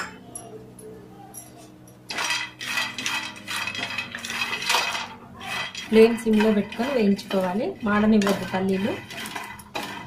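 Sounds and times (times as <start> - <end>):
peanuts rattling in a pan: 2.1 - 10.0.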